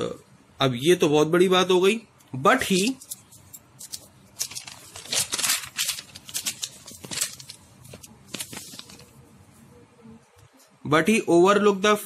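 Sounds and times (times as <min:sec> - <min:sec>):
book pages rustling: 0:02.7 - 0:09.2.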